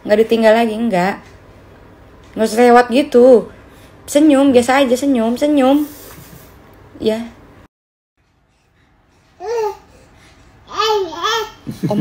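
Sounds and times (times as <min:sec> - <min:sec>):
baby babbling coo: 0:10.7 - 0:11.6.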